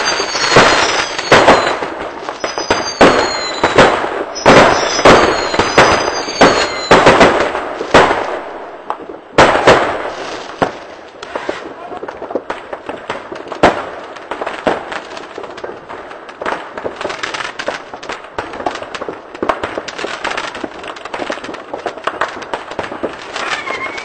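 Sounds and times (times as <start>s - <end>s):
firecrackers crackling: 0.0s - 24.0s
sharp firework bangs: 0.0s - 24.0s.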